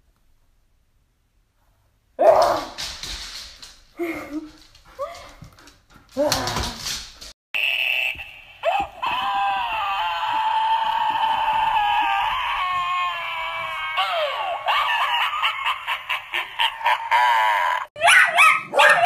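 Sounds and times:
dog high-pitched wail: 7.6 - 15.5.

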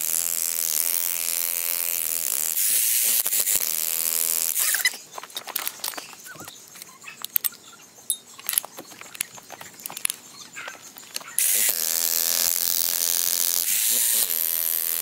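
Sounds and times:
faint clicks and knocks: 5.0 - 11.4
demolition hammer buzzing into rock: 11.4 - 15.0.

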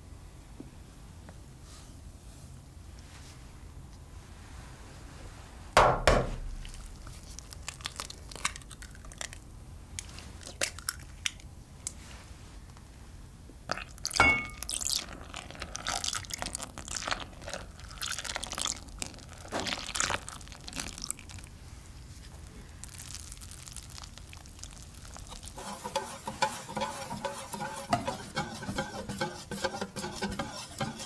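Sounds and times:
egg cracking on bowl: 10.4 - 11.5
milk pouring splashing: 13.7 - 21.5, 22.8 - 25.6
knock with glassy ring: 14.2 - 14.6.

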